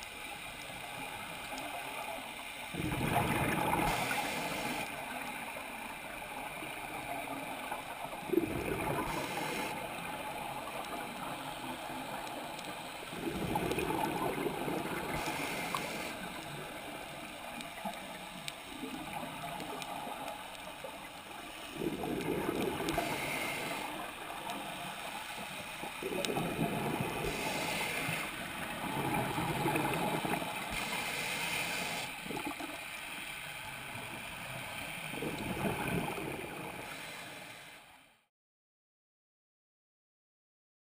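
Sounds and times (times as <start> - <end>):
exhaled bubbles underwater: 2.7 - 5.2, 6.5 - 12.4, 13.0 - 24.9, 25.8 - 33.0, 33.7 - 37.1
regulator inhalation hiss: 3.8 - 4.9, 8.9 - 10.1, 15.0 - 16.4, 22.8 - 24.3, 27.1 - 28.7, 30.6 - 32.2, 36.6 - 37.9.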